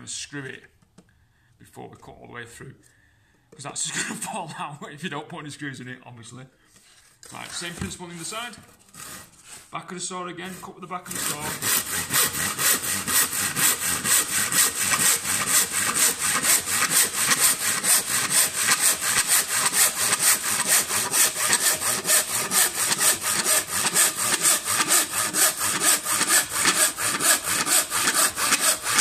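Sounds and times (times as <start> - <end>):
hand saw cutting wood: 6.8 - 29.0.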